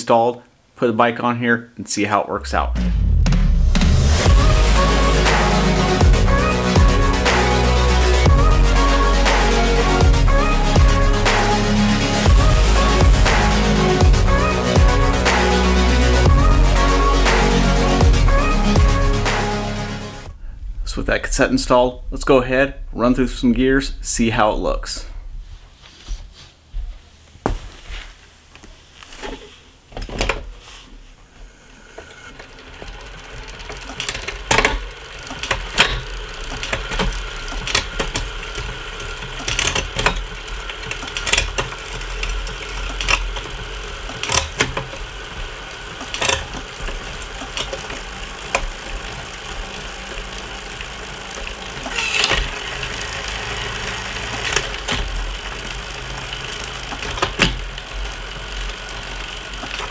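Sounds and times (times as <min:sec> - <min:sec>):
bicycle chain spinning on trainer: 0:04.0 - 0:19.2, 0:31.6 - 0:59.9
derailleur shifting clicks: 0:32.4 - 0:59.9.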